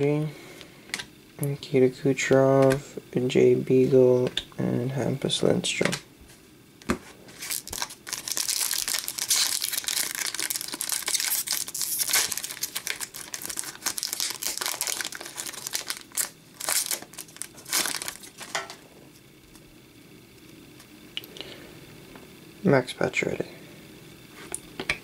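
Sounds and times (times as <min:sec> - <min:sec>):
wrapper tearing and crinkling: 0:07.3 - 0:18.8.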